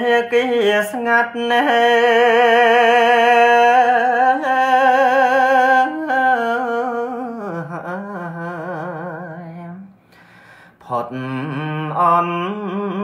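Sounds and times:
man chanting verse unaccompanied: 0.0s - 9.9s.

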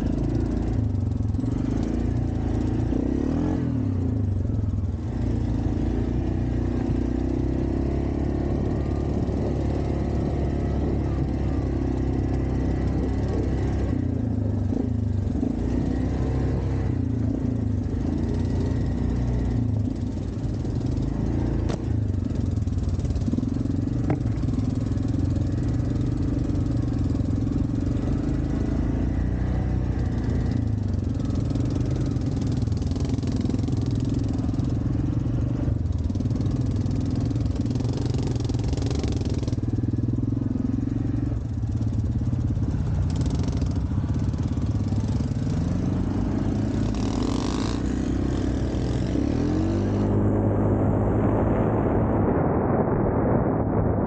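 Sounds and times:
atv engine running: 0.0s - 52.5s.

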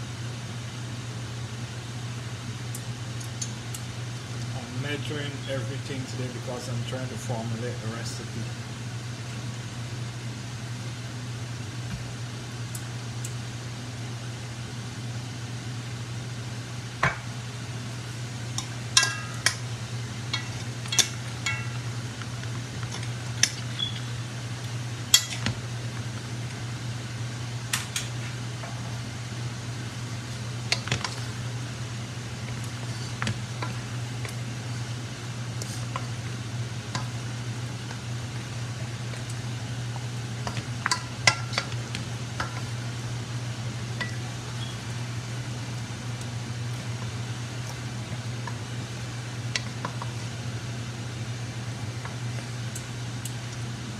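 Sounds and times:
range hood fan hum: 0.0s - 53.9s
utensils clinking against pots: 20.3s - 21.8s.

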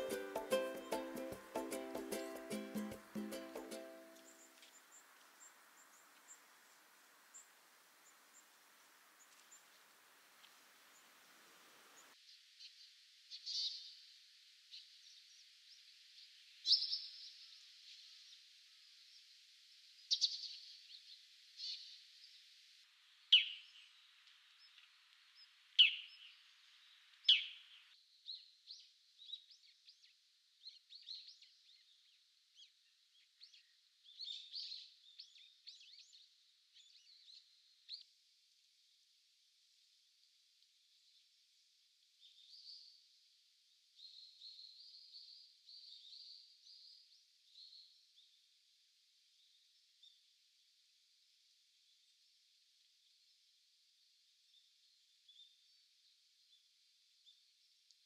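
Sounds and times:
sparrow sharp chirps: 16.6s - 17.2s, 23.3s - 23.9s, 25.8s - 26.3s, 27.2s - 27.7s
faint high bird twittering: 16.6s - 18.4s, 20.0s - 22.4s, 23.3s - 38.0s.

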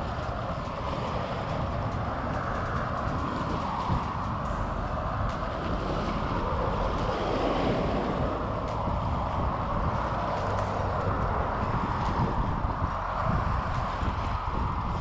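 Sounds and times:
fishing reel being cranked: 0.0s - 7.7s
waves washing on rocks: 0.0s - 15.0s
wind buffeting microphone: 0.0s - 15.0s.

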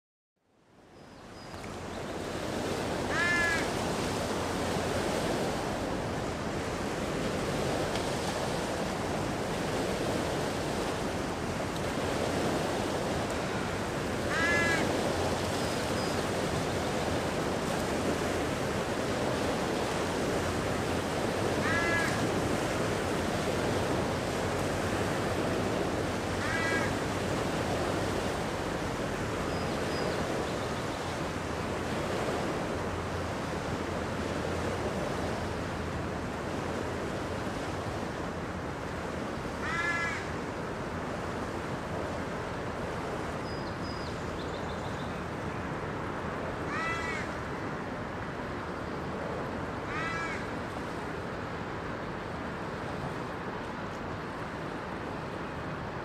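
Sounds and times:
light wind: 0.4s - 56.0s
waves washing on rocky beach: 2.2s - 30.4s, 31.1s - 43.4s
crow cawing: 3.1s - 3.7s, 14.3s - 14.9s, 21.6s - 22.2s, 26.4s - 27.0s, 39.6s - 40.3s, 46.7s - 47.4s, 49.9s - 50.5s.

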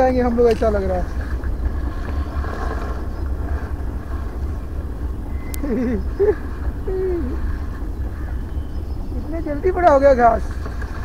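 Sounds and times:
grass rustling against microphone: 0.0s - 11.0s
low rumble: 0.0s - 11.0s
hummed voice: 5.6s - 7.6s.

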